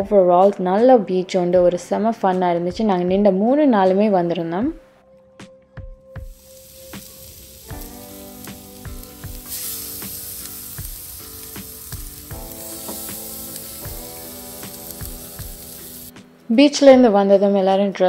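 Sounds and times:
soft background music: 0.0s - 18.0s
fish sizzling on grill: 6.2s - 16.1s.

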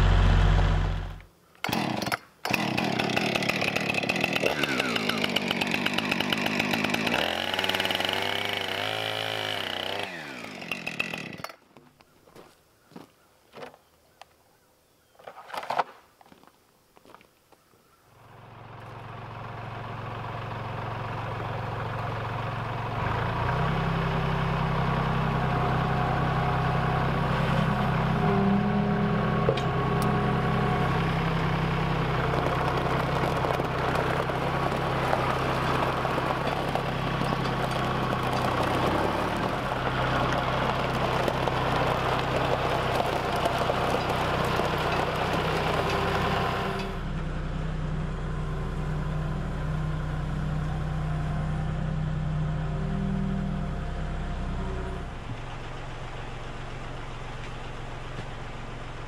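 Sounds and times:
tractor diesel engine running: 0.0s - 1.8s, 2.5s - 11.5s, 18.2s - 59.0s
chainsaw cutting log: 0.0s - 11.6s, 29.4s - 47.0s.

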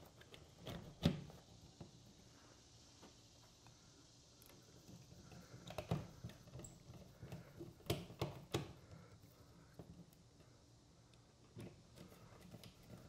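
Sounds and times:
screwdriver clicks and taps on plastic: 7.3s - 8.8s.

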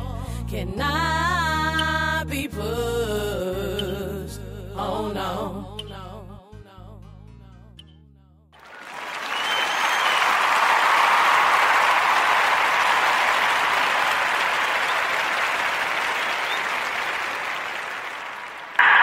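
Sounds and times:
audience applauding: 8.6s - 19.0s.

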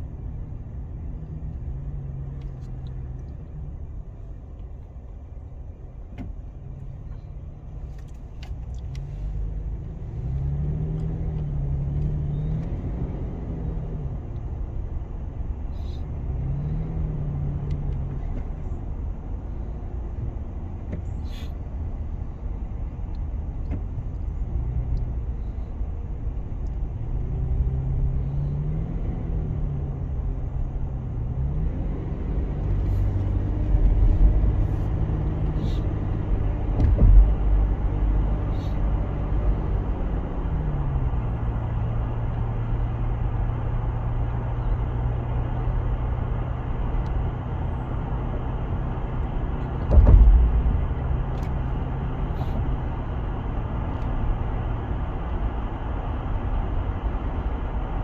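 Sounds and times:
car engine and tyre rumble: 0.0s - 58.0s
loud thumps: 49.7s - 51.5s.

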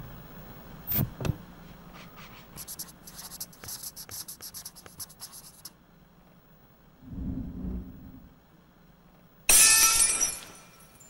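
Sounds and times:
faint low hum: 0.0s - 9.5s
dry scratching ticks: 2.0s - 5.8s.

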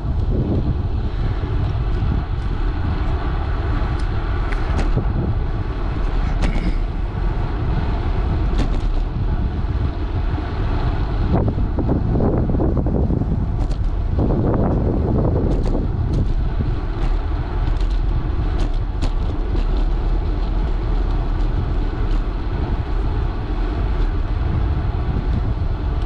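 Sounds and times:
bicycle tyres rolling on asphalt: 0.0s - 26.0s
wind rushing over microphone: 0.0s - 26.0s.

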